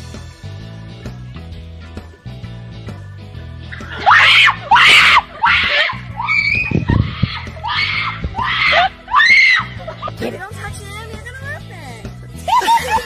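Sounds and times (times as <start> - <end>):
background music: 0.0 - 13.0
girl screaming shrilly: 3.9 - 9.8.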